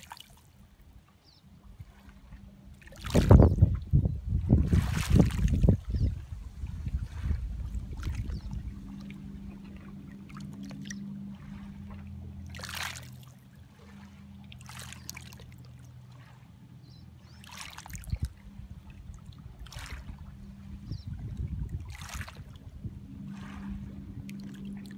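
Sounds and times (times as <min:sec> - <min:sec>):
waves lapping on pebbles: 0:00.0 - 0:00.5, 0:02.8 - 0:03.6, 0:04.5 - 0:16.4, 0:17.3 - 0:18.5, 0:19.6 - 0:22.6, 0:23.2 - 0:24.9
steady low hum: 0:00.0 - 0:24.9.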